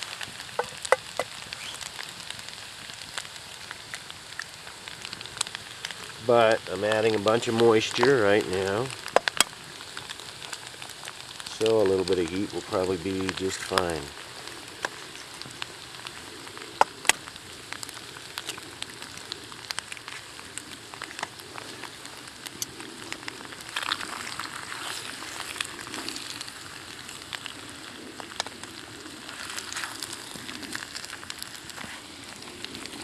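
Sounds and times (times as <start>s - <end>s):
food sizzling in a frying pan: 0.0s - 33.0s
frying pops and crackles: 0.0s - 33.0s.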